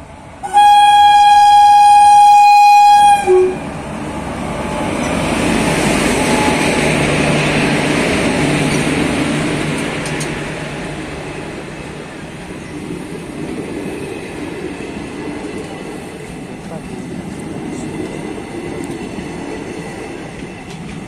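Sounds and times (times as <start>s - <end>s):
train wheels rumbling on track: 0.0s - 21.0s
lower horn toot: 0.4s - 3.8s, 6.1s - 7.0s
train horn blast: 0.4s - 3.8s, 6.0s - 7.0s.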